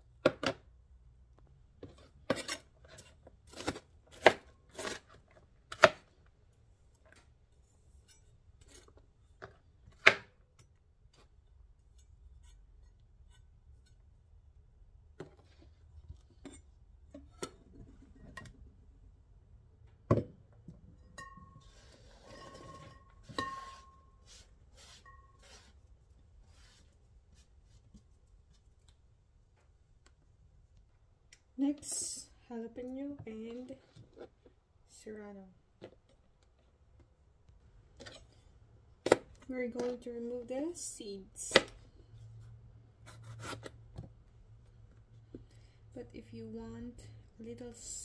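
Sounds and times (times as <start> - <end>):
glass bowl clinking: 21.0 - 24.2.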